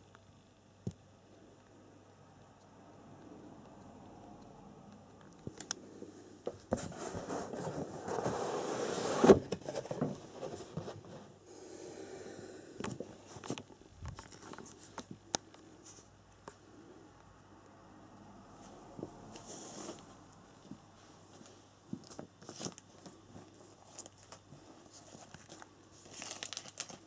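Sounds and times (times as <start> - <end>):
cardboard sleeve scraping: 6.6 - 11.4.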